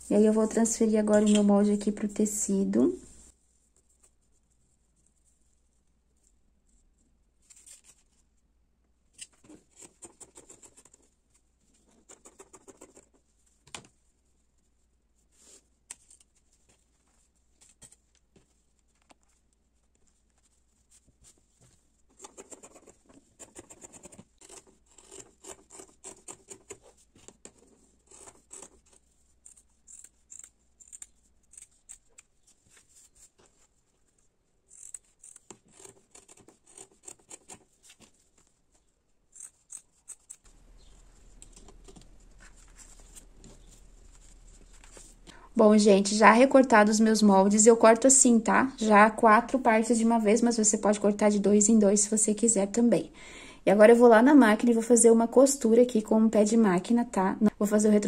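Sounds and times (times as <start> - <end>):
scissors snipping fabric: 22.2 - 32.3, 34.7 - 37.7, 39.3 - 40.5.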